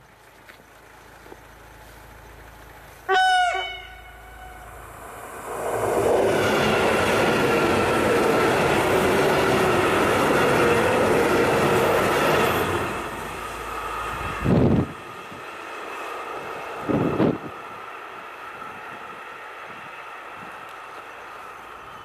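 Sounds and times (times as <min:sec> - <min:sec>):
train wheels rushing on rail: 0:00.9 - 0:22.0
train horn blast: 0:03.1 - 0:05.0
steady whine: 0:03.8 - 0:15.5.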